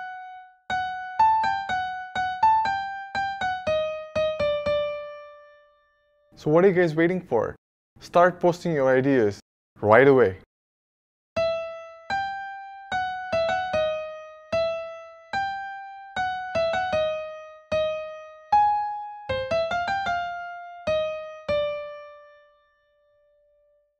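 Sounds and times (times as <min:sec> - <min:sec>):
slow piano melody: 0:00.0 - 0:06.3, 0:11.4 - 0:23.8.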